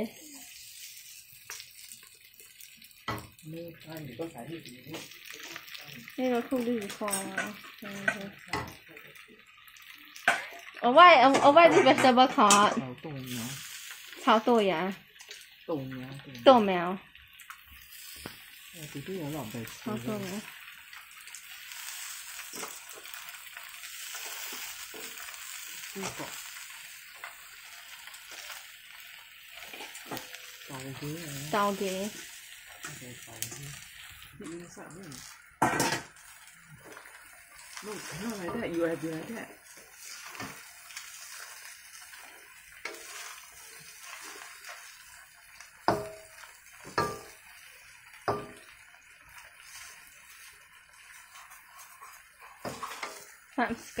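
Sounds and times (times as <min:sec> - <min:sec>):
spatula scraping a wok: 0:00.0 - 0:02.0, 0:17.6 - 0:20.7, 0:21.4 - 0:34.3, 0:35.1 - 0:54.0
noodles sizzling in a wok: 0:00.0 - 0:54.0
spatula knocking against wok: 0:45.9 - 0:46.3.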